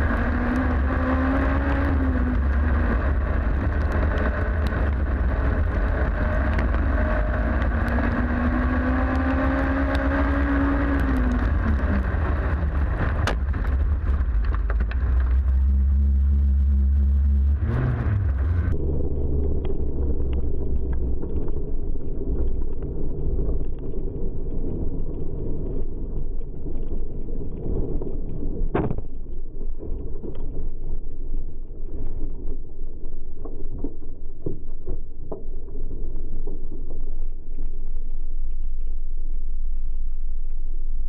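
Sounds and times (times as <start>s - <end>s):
race car engine running: 0.0s - 23.6s.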